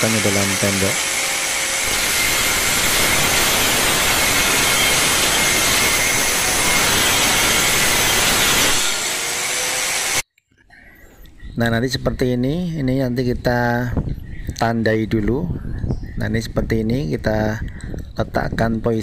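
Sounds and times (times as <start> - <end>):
angle grinder cutting steel mesh: 0.0 - 10.2.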